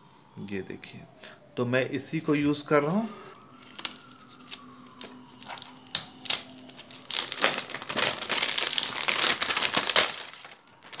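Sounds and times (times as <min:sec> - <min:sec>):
plastic packaging crinkling: 0:03.4 - 0:11.0.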